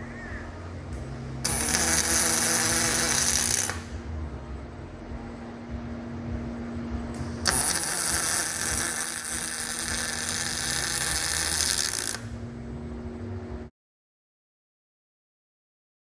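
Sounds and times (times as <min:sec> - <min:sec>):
machine hum: 0:00.0 - 0:13.7
welding arc crackling: 0:01.4 - 0:04.0, 0:07.2 - 0:12.3.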